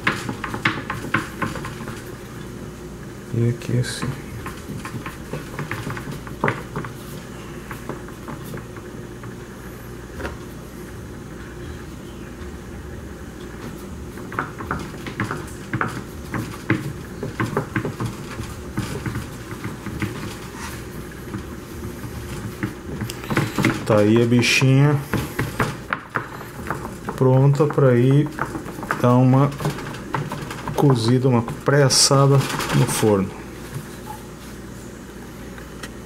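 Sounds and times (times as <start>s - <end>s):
fingers tapping dough on metal pan: 0.0s - 2.1s, 3.9s - 7.0s, 14.1s - 20.4s, 21.2s - 31.8s
steady low hum: 0.0s - 36.0s.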